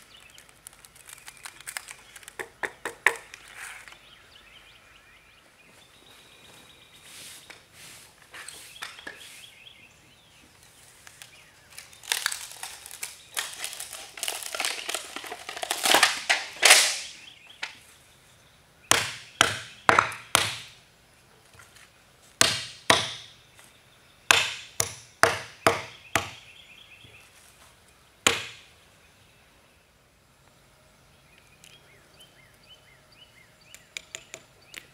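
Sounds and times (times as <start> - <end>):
crinkling and scraping: 0.0 - 4.0, 10.5 - 17.8
hammer cracking brittle pitch: 12.0 - 17.2, 18.9 - 20.8, 22.4 - 23.3, 24.3 - 26.4, 28.3 - 28.7.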